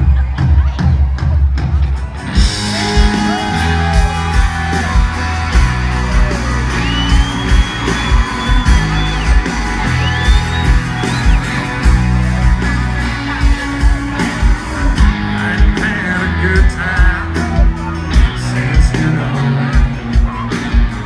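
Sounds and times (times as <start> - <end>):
country-rock band playing: 0.0 - 21.0
fans whooping: 2.2 - 21.0
long high whistle: 6.7 - 11.6.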